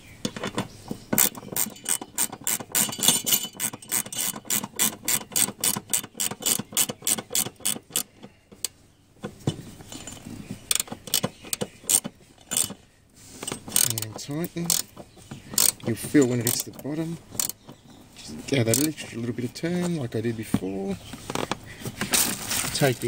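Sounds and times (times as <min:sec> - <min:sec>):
ratcheting spanner clicking: 0:00.3 - 0:08.8, 0:09.9 - 0:12.8, 0:13.4 - 0:17.8, 0:18.6 - 0:19.1.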